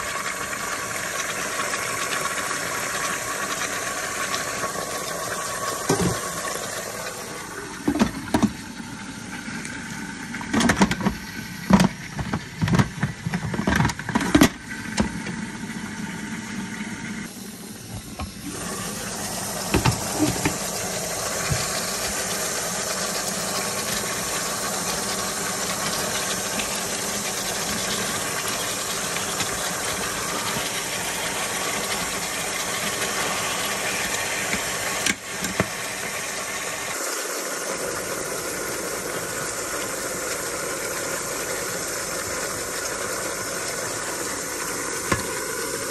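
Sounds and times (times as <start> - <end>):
steady hiss from pot: 17.2 - 45.9.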